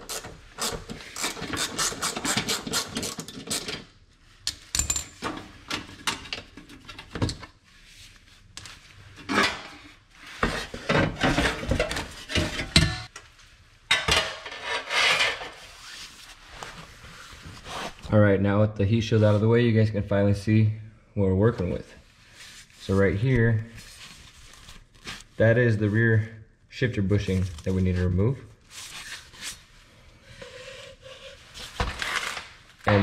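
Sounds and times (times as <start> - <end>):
metal clattering and scraping: 9.2 - 13.1, 13.9 - 15.7.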